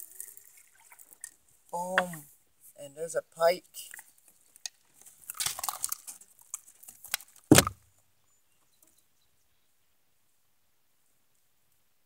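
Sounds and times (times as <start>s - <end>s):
heavy thump: 7.5s - 7.8s.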